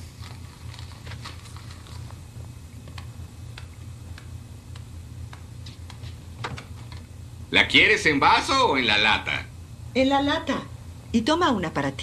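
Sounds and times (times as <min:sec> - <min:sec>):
paper pages rustling: 0:00.0 - 0:02.2.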